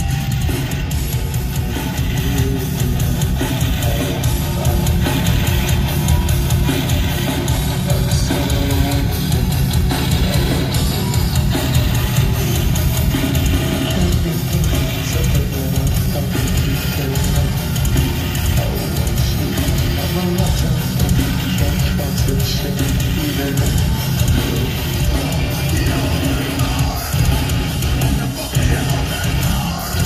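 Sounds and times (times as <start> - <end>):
distorted electric guitars: 0.0 - 30.0
drum kit: 0.0 - 30.0.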